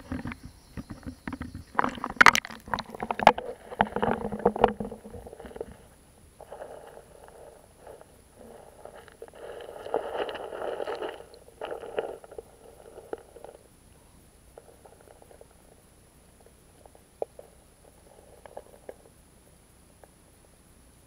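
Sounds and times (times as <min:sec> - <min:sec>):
small clicks underwater: 0:00.0 - 0:05.8, 0:16.4 - 0:19.2
muffled underwater moving water: 0:00.0 - 0:19.2.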